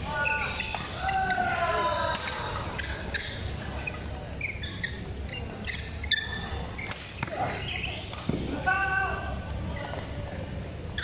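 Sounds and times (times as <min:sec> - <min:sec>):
rackets hitting shuttlecock: 0:00.0 - 0:01.4, 0:02.1 - 0:03.3, 0:06.8 - 0:08.6
shoes squeaking on court floor: 0:00.0 - 0:01.4, 0:02.5 - 0:08.4.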